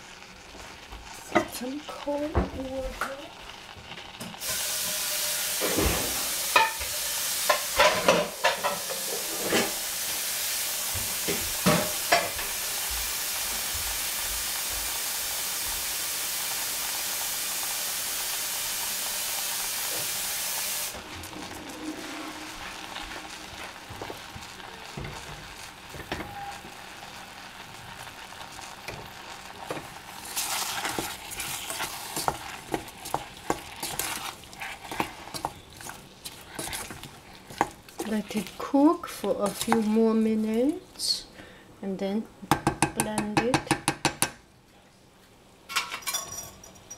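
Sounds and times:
water running from a tap: 4.4 - 25.4
pot clunking: 5.5 - 9.8, 20.9 - 26.8.

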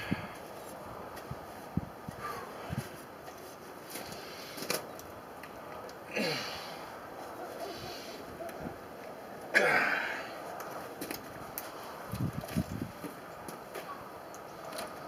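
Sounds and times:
man grunting with breathy exhalations: 6.0 - 6.9, 9.5 - 10.4.

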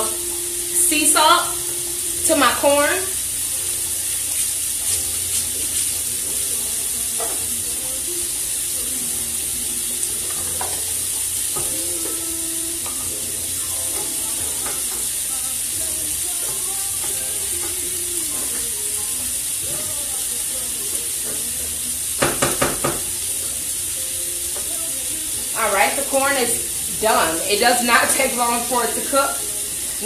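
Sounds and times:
grease sizzling: 0.0 - 30.0
utensil knocking against pot: 22.2 - 23.1.

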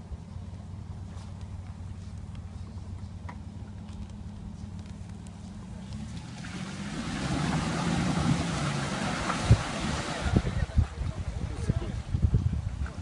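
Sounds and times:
car engine revving: 3.6 - 10.7
water and mud splashing: 5.9 - 13.0.

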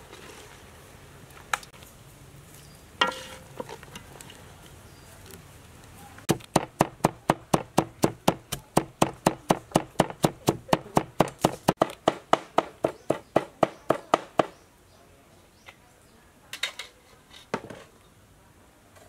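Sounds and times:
cleaver chopping on wooden board: 6.3 - 14.6.

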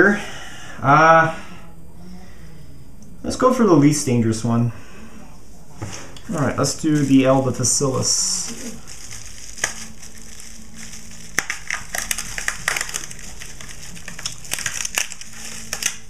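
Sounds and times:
faint steady hum: 0.0 - 16.0
packing material crinkling: 6.3 - 16.0.

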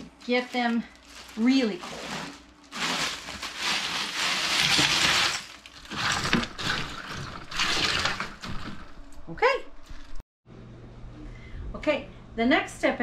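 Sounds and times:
ice and water stirred by hand: 0.3 - 9.0
ice cubes clattering into water: 0.6 - 9.0.

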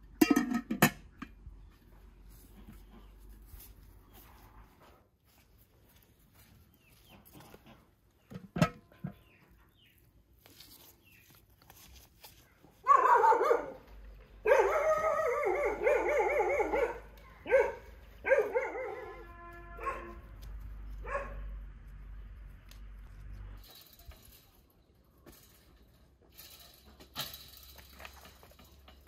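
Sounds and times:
dog barking: 12.8 - 20.3, 21.0 - 21.6.

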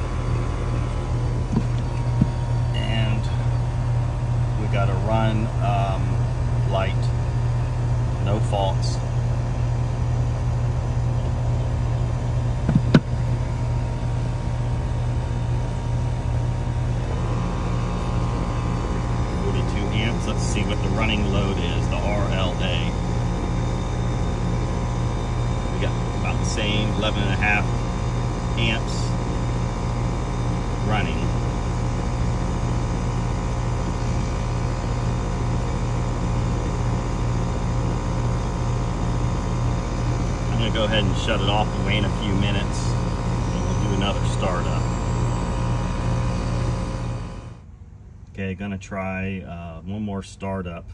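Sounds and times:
air conditioner condenser hum: 0.0 - 50.9
gas generator running: 0.0 - 50.9
brief knock: 12.6 - 13.1.

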